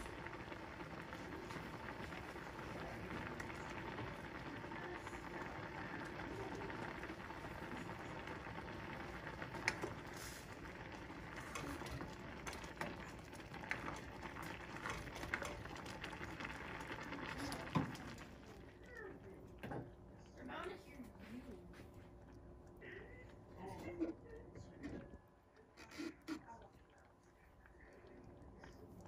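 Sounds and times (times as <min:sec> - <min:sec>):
water boiling and bubbling: 0:00.0 - 0:29.0.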